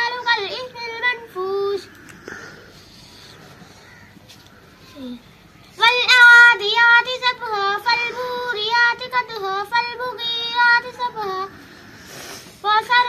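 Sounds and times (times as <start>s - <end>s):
girl chanting recitation: 0.0s - 2.1s, 4.7s - 11.8s, 12.5s - 13.0s.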